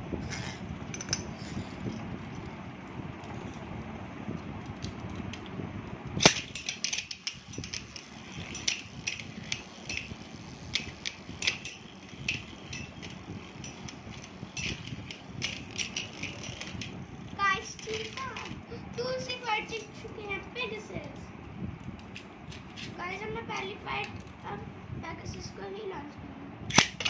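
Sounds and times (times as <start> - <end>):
spinning tops clicking together: 6.2 - 18.6
spinning tops whirring: 6.2 - 20.9.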